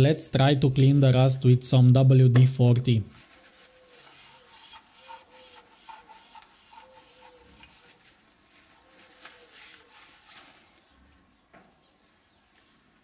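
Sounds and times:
paper towel rubbing metal: 0:00.6 - 0:01.6, 0:03.1 - 0:11.0.

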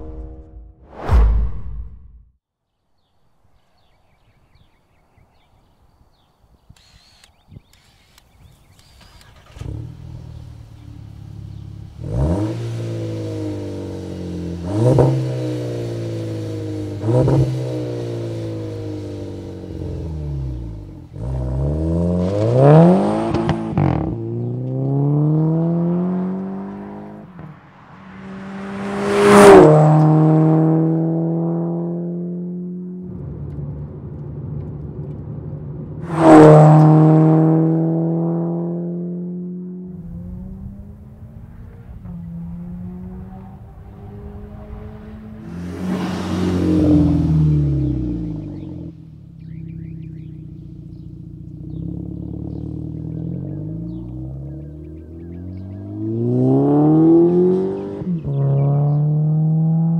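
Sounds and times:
car engine accelerating: 0:07.7 - 0:59.9
car passing by: 0:08.8 - 0:32.7, 0:36.0 - 0:39.3, 0:40.1 - 0:48.9, 0:55.4 - 0:59.9.

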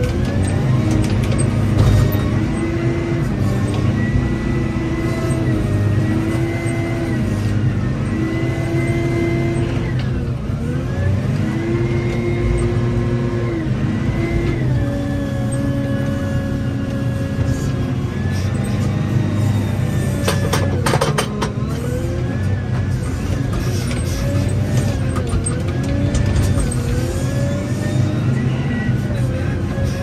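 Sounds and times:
wheel loader diesel engine: 0:00.0 - 0:30.0.

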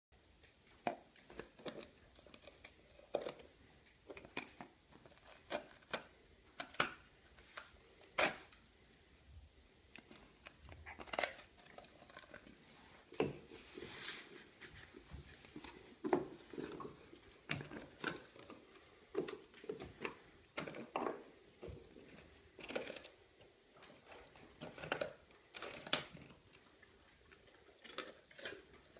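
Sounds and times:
dog crunching bread crust: 0:00.4 - 0:08.7, 0:09.9 - 0:12.7, 0:14.9 - 0:28.9.

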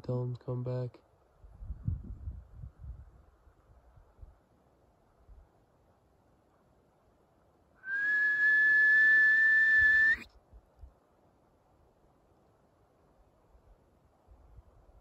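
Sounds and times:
loud high whistle: 0:07.8 - 0:10.3.

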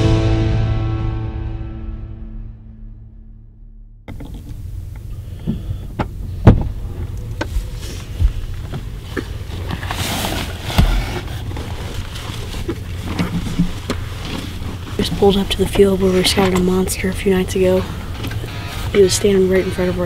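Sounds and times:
steady low hum: 0:02.1 - 0:20.0
rustling: 0:04.1 - 0:20.0.

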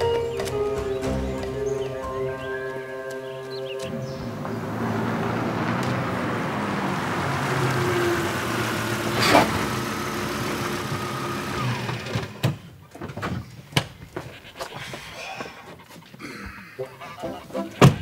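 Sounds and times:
car engine running: 0:04.2 - 0:12.4.

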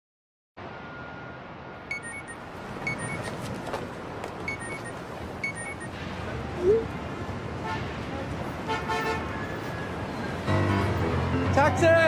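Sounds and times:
traffic hum: 0:00.6 - 0:12.0
short high-pitched electronic beeps: 0:01.9 - 0:03.3, 0:04.5 - 0:05.9.

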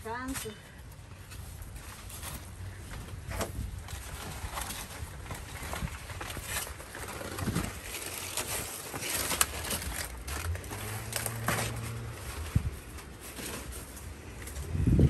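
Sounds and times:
leaves rustling: 0:01.2 - 0:15.0.

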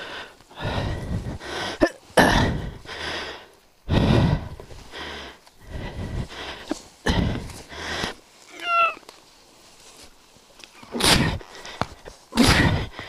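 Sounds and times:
heavy breaths and grunts: 0:00.0 - 0:08.7, 0:10.7 - 0:13.0
rustling and scraping: 0:06.2 - 0:12.6.

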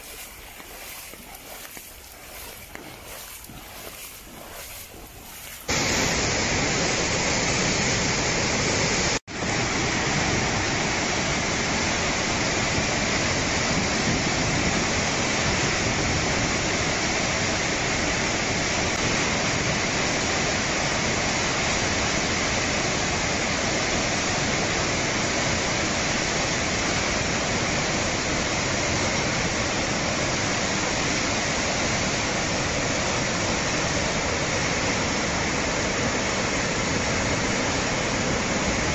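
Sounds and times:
flood river rushing: 0:00.0 - 0:14.1.

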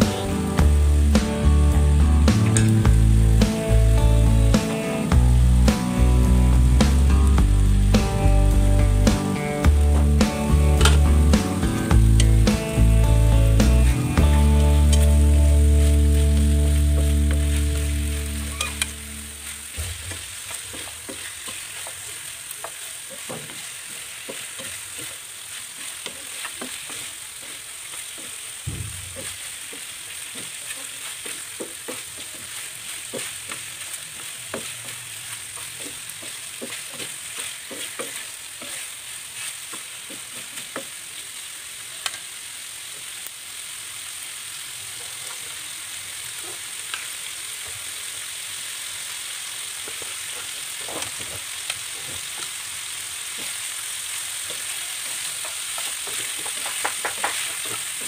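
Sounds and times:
chicken sizzling in hot oil: 0:00.0 - 0:58.0
wooden spatula scraping pan: 0:19.8 - 0:28.4, 0:29.1 - 0:40.9.

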